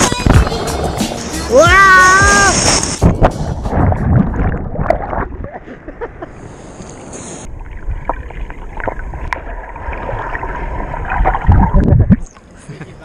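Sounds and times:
sea water splashing and gurgling: 0:00.0 - 0:12.5
underwater bubbles: 0:02.6 - 0:05.6, 0:06.8 - 0:12.4.

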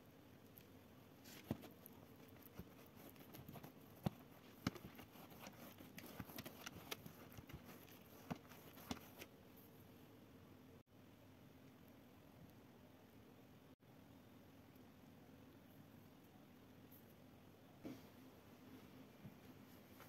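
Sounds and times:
pastry brush brushing: 0:01.1 - 0:09.3.

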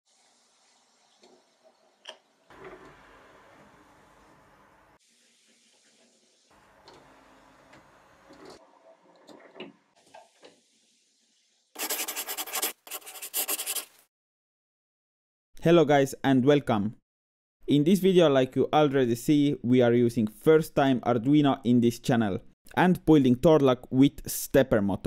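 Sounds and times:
loud scratchy scribbling noise: 0:11.8 - 0:14.0.

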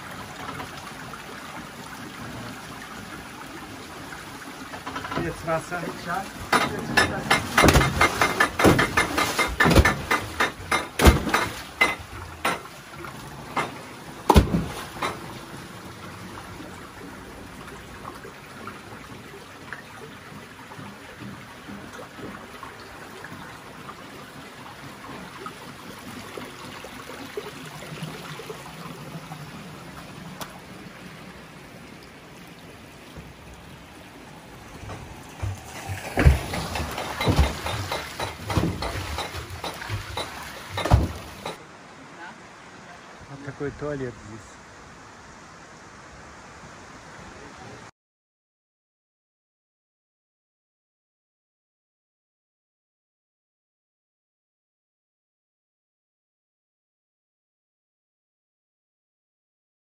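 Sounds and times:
water running: 0:00.0 - 0:41.6
clattering knocks: 0:06.5 - 0:12.7, 0:34.8 - 0:41.6.

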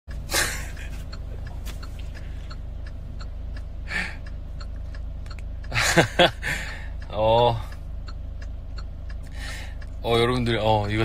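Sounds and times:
car cabin engine hum: 0:00.1 - 0:11.0
faint regular ticking: 0:00.1 - 0:11.0
short breath: 0:09.3 - 0:09.8.

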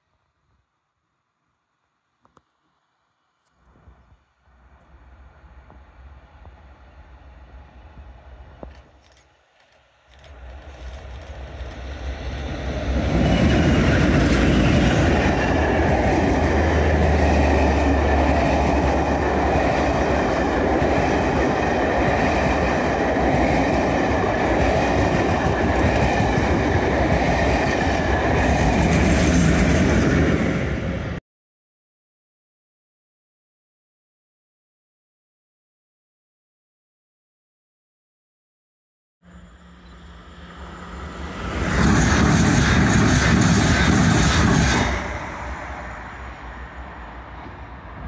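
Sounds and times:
diesel locomotive passing: 0:04.5 - 0:31.2, 0:39.3 - 0:48.0
train wheels rumbling on rails: 0:05.0 - 0:31.2, 0:39.8 - 0:48.0.

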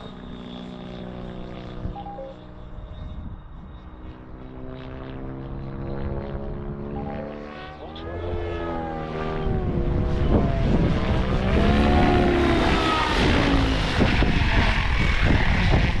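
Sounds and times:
rc helicopter rotor whine: 0:00.0 - 0:16.0
wind on microphone: 0:09.2 - 0:16.0.

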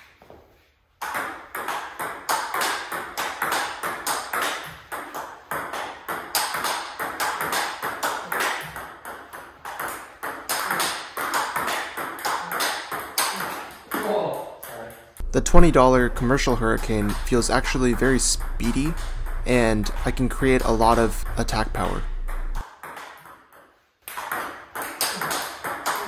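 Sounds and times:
ball bouncing on table: 0:16.6 - 0:23.3, 0:24.1 - 0:26.0.

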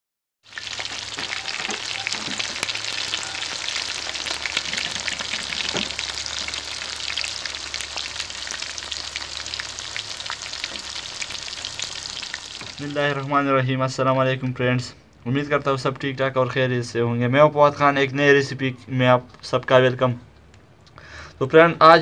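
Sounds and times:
chicken deep-frying in oil: 0:00.4 - 0:13.3.

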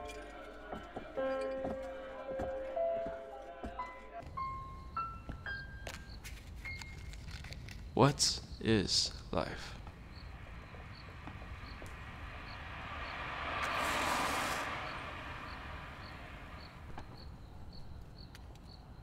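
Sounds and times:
crickets chirping: 0:04.3 - 0:19.0
car passing by: 0:09.6 - 0:18.4
low steady rumble: 0:09.7 - 0:18.1.

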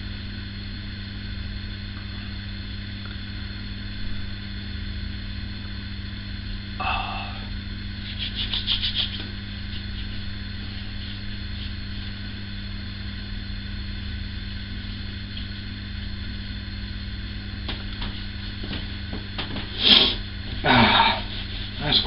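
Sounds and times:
low room hum: 0:00.0 - 0:22.0
hands patting lotion on face: 0:08.1 - 0:10.3.

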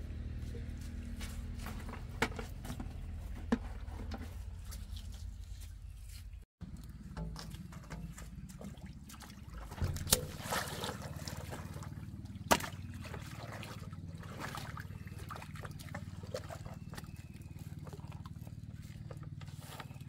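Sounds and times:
water splashing: 0:06.8 - 0:19.9.

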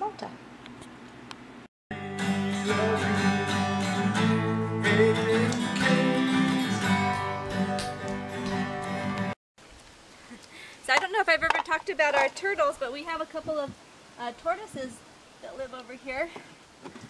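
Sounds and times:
acoustic guitar strumming: 0:01.9 - 0:09.4.

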